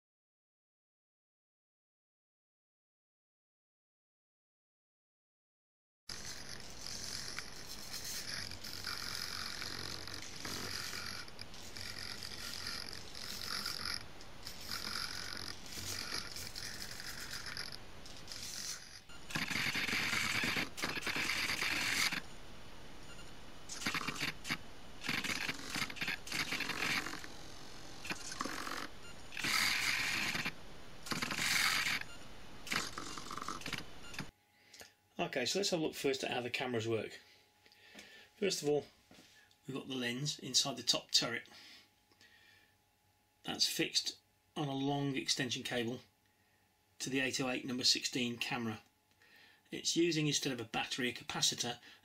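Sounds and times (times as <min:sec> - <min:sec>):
servos whirring and buzzing: 0:06.1 - 0:22.3, 0:23.1 - 0:34.3.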